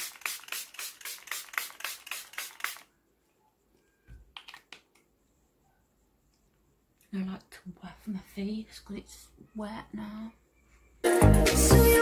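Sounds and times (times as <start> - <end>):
spray bottle hisses: 0.0 - 2.9.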